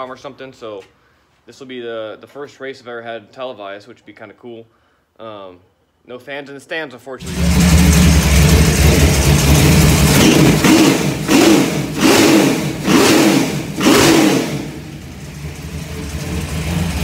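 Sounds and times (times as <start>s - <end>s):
race car engine idling and revving: 7.2s - 17.0s.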